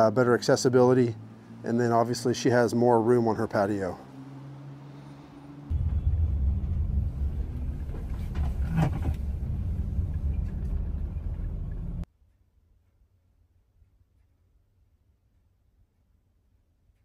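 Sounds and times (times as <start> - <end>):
engine and road rumble in cabin: 0.0 - 12.1.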